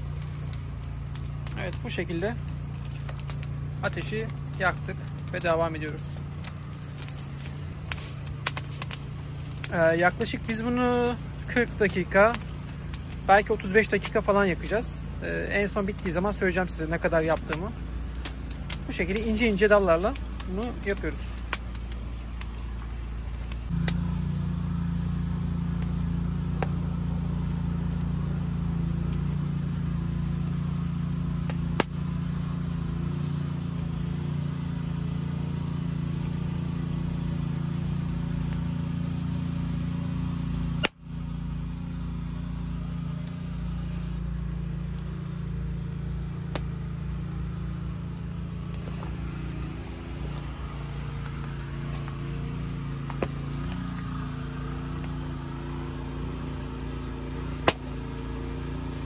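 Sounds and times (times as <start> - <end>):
low mechanical hum: 0.0 - 59.0
twig fire crackling: 0.0 - 59.0.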